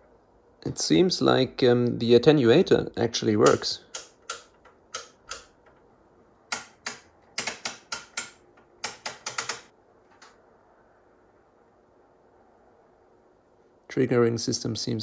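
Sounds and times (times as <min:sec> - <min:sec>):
oscilloscope switches clicking: 0:03.4 - 0:05.8, 0:06.5 - 0:10.4.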